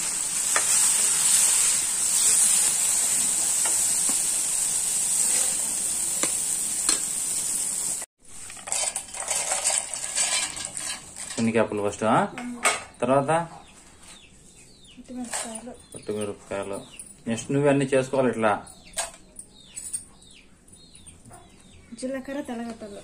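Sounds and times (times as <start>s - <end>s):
tomato sizzling in hot oil: 0.0s - 11.6s
peanuts clattering in steel bowl: 8.4s - 11.6s.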